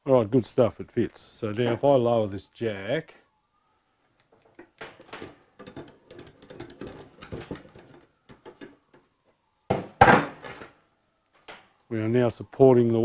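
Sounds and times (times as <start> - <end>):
lift jack clicking and knocking: 4.7 - 8.8.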